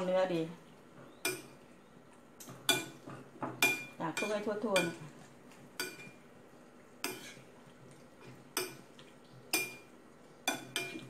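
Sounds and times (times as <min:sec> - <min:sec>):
metal spoon stirring in bowl: 0:02.4 - 0:06.2, 0:07.0 - 0:07.5, 0:08.2 - 0:11.0
spoon clinking against ceramic bowl: 0:03.6 - 0:05.0, 0:09.5 - 0:09.9.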